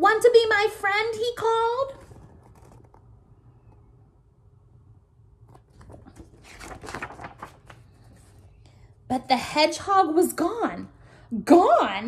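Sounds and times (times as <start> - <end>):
paper rustling and flapping: 1.9 - 3.9, 5.4 - 8.6.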